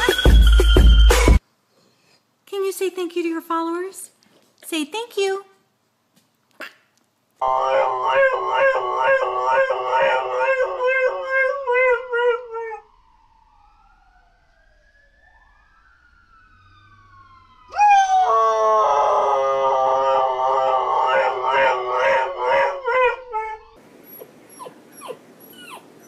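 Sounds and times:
dog howling: 7.4s - 12.9s, 17.7s - 25.9s
distant siren: 7.4s - 24.4s.

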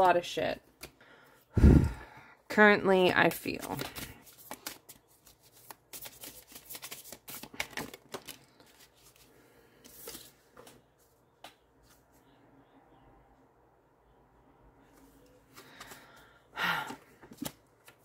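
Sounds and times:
cards being shuffled: 3.5s - 10.8s, 17.2s - 18.0s.

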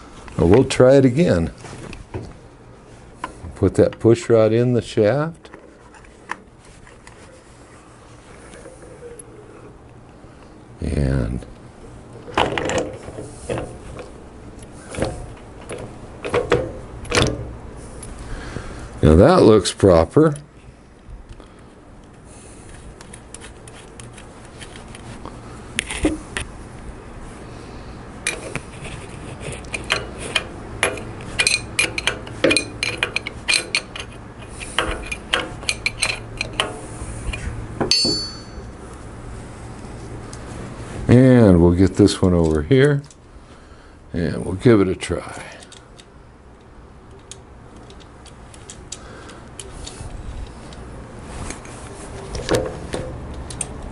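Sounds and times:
metal clinks and knocks: 29.7s - 34.2s, 37.8s - 38.8s
metal tool set down: 37.8s - 38.7s
hand tools clinking on metal: 37.9s - 38.8s.

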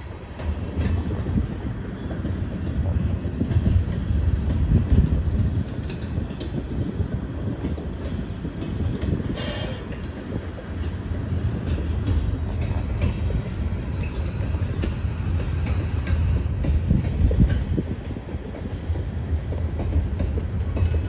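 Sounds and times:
freight train rumbling past: 0.0s - 21.0s
wheels clacking over rail joints: 0.0s - 21.0s
high wheel squeal: 9.4s - 10.0s.

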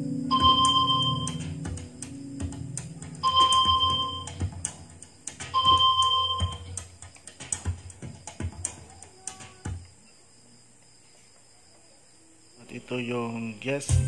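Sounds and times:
synthesizer music with steady beat: 0.0s - 8.7s
short electronic chime tones: 0.3s - 1.5s, 3.2s - 4.3s, 5.6s - 6.6s.

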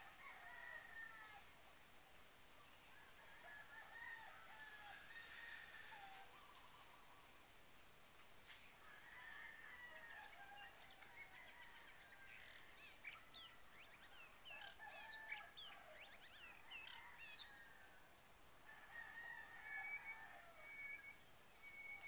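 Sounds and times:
rooster crowing: 0.0s - 1.5s, 3.1s - 6.4s, 8.8s - 12.7s, 14.6s - 21.2s.

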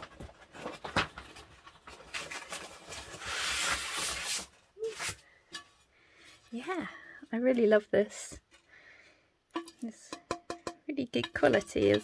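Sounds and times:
rustling: 0.0s - 6.9s.

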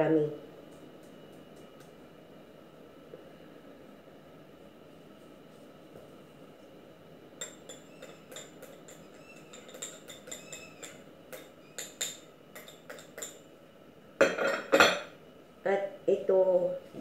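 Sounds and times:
utensils clattering in bowl: 7.4s - 13.4s, 14.2s - 15.1s
whisk tapping metal bowl: 7.4s - 13.4s.

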